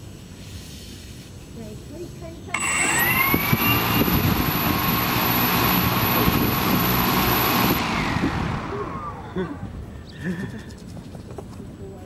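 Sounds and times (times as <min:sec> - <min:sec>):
drone motors whirring: 0:02.5 - 0:09.8.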